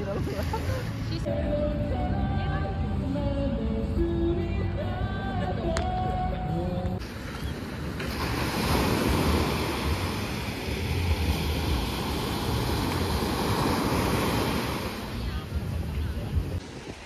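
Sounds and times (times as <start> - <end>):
waves breaking on sandy beach: 7.0 - 17.0.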